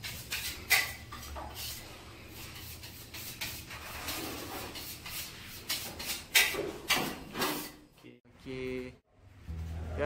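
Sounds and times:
grout scraping on tiles: 0.0s - 7.8s.

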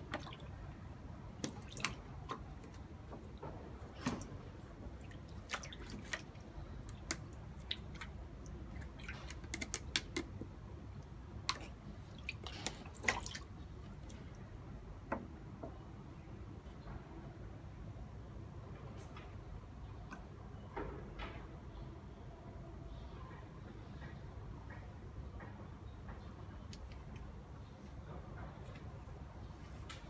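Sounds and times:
water splashing in a tub: 0.0s - 10.5s, 11.4s - 14.2s.

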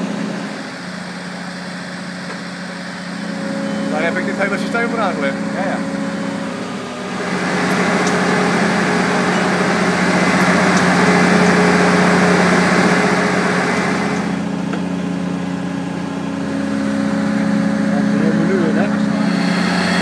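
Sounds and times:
diesel engine running: 0.0s - 20.0s
rushing noise: 18.8s - 20.0s.

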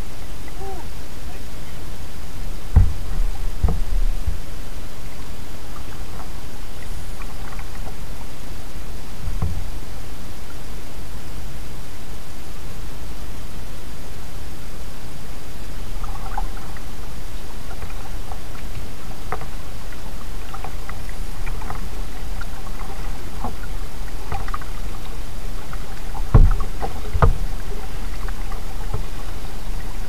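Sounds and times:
steady low noise: 0.0s - 30.0s
paddle strokes splashing in water: 2.6s - 4.5s, 16.0s - 30.0s
loud thumps: 2.7s - 4.4s, 26.3s - 27.5s.

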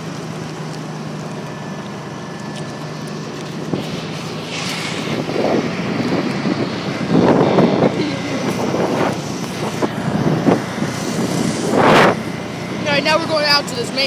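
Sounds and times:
utility vehicle running: 0.0s - 14.0s
wind on microphone: 3.6s - 13.1s.

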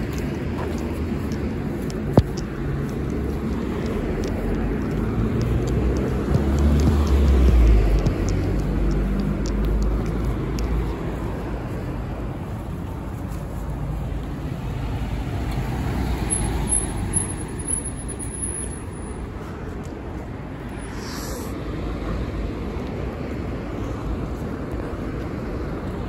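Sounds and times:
cars driving past: 0.0s - 26.0s.

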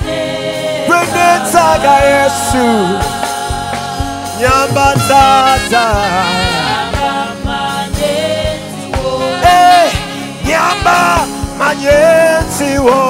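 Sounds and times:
backing vocalists singing: 0.0s - 13.0s
instrumental backing: 0.1s - 13.0s
man singing into microphone: 0.9s - 3.1s, 4.4s - 7.0s, 9.3s - 13.0s
steady drum beat: 1.5s - 12.1s.

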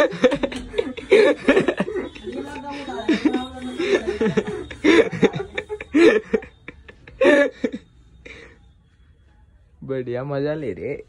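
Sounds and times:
laughter: 0.0s - 7.9s.

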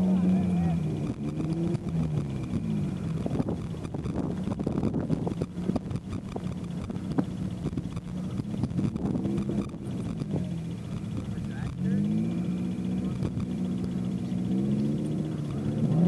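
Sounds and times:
car engine humming: 0.0s - 16.0s
wind buffeting microphone: 1.0s - 11.8s.

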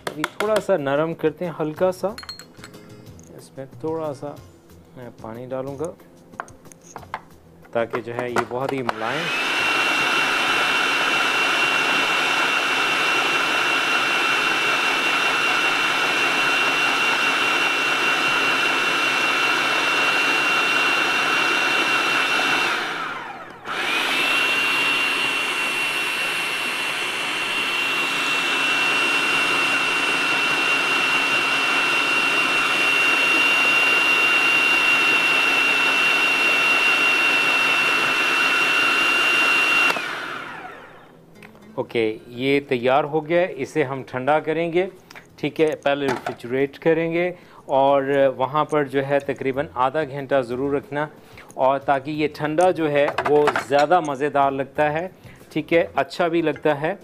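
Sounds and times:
food processor motor whining: 8.7s - 41.2s.

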